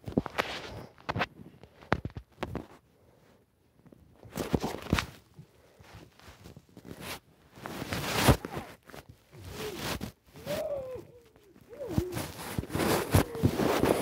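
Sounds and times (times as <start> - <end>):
blankets and plush toys rustling: 0.0 - 14.0
child humming: 9.3 - 14.0.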